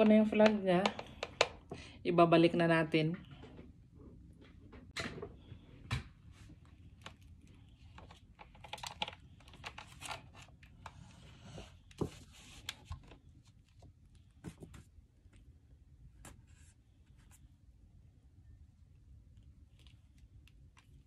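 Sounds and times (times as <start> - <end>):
radio handling clicks and taps: 0.0 - 1.8
cord rustling against casing: 6.5 - 11.1.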